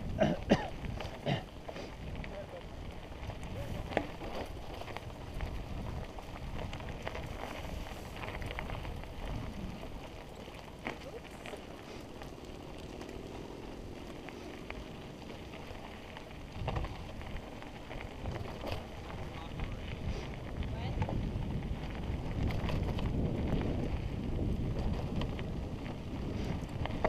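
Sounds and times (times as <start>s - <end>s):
bike rattling over bumps: 0.0s - 27.0s
bike tyres rumbling on dirt: 0.0s - 27.0s
wind on microphone: 1.9s - 10.3s, 16.2s - 27.0s.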